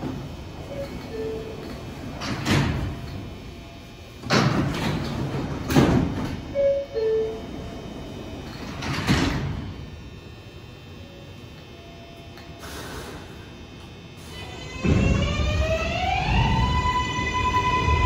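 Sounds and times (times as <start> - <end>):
train doors sliding shut: 0.0 - 3.4, 4.2 - 9.9, 14.2 - 16.7.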